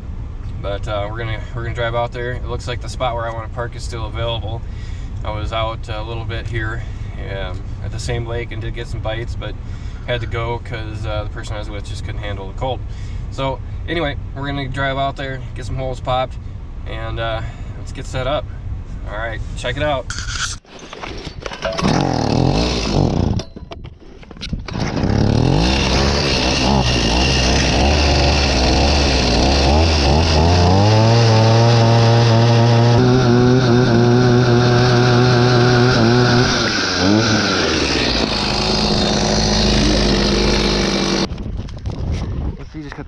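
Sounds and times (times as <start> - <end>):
ice auger engine running: 21.7 - 23.4, 24.7 - 41.3.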